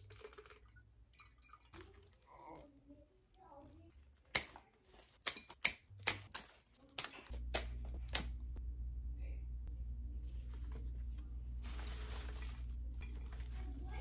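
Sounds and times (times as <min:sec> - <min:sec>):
scissors snipping stems: 0:04.2 - 0:04.6, 0:05.2 - 0:08.4
steady low hum: 0:07.3 - 0:14.0.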